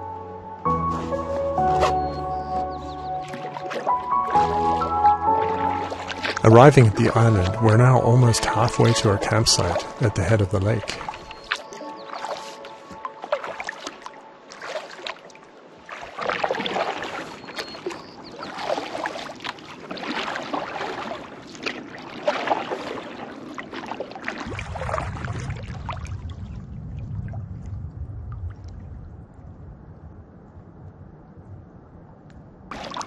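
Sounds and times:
water against hull: 0.0s - 31.4s, 32.0s - 33.0s
paddle strokes splashing water: 0.7s - 26.6s, 32.7s - 33.0s
low rumble: 24.5s - 32.7s.

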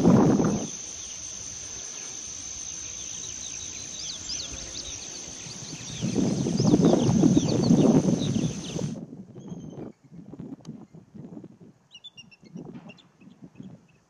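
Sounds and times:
insect chirps: 0.0s - 9.0s
insects buzzing: 0.0s - 9.0s.

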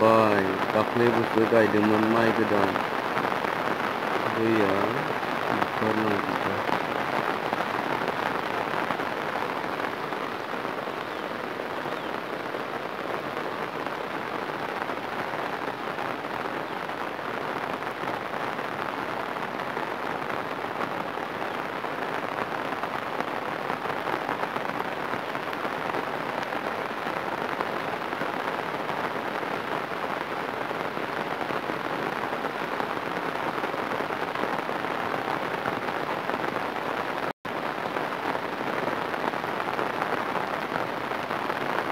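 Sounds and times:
heavy rain on water: 0.0s - 41.9s.

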